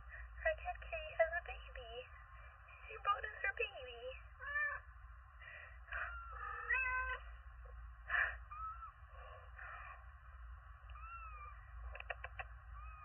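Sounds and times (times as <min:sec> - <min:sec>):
cat meowing: 0:06.0 - 0:07.1, 0:08.5 - 0:09.0, 0:10.9 - 0:13.0.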